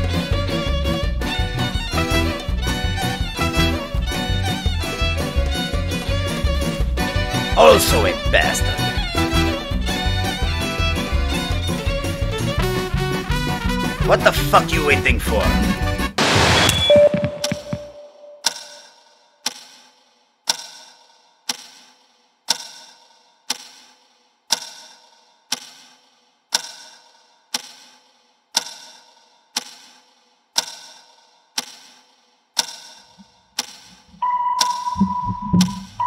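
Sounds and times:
clock ticking: 32.6s - 36.0s
steady high tone: 34.2s - 36.0s.

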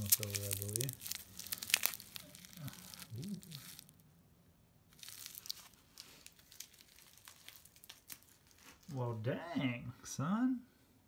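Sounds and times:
plastic wrapping crinkling and tearing: 0.0s - 4.0s, 4.9s - 9.0s.

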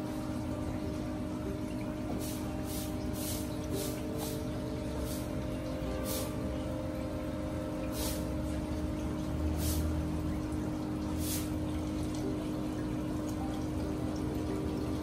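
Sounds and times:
pump humming: 0.0s - 15.0s
water trickling and bubbling: 0.0s - 15.0s
brief hiss of water: 2.2s - 4.4s, 8.0s - 8.3s, 9.6s - 10.0s, 11.2s - 11.6s.

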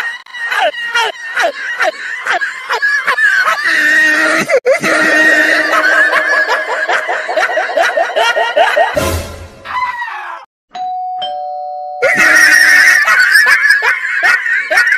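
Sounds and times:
high-pitched laughter: 0.0s - 9.0s, 12.0s - 14.9s.

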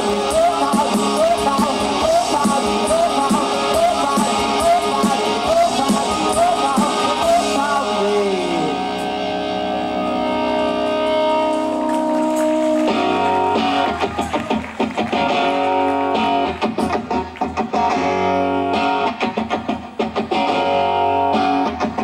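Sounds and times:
person singing: 0.0s - 14.6s
live rock band: 0.0s - 22.0s
strummed electric guitar: 0.0s - 22.0s
guitar chord ringing: 7.7s - 13.7s.

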